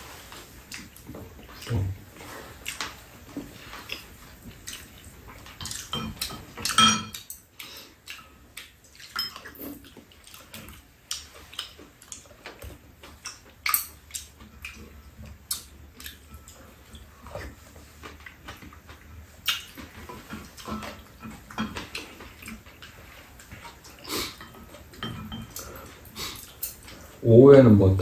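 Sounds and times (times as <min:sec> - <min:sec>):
utensils clinking on ceramic bowls: 0:05.5 - 0:07.5, 0:09.0 - 0:09.6, 0:20.2 - 0:21.9, 0:24.3 - 0:26.0.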